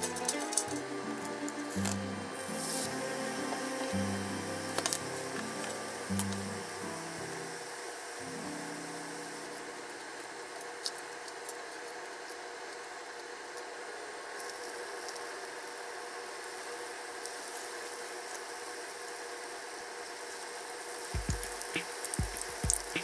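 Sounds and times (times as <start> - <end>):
oil sizzling in a frying pan: 1.7 - 10.6, 19.6 - 23.0.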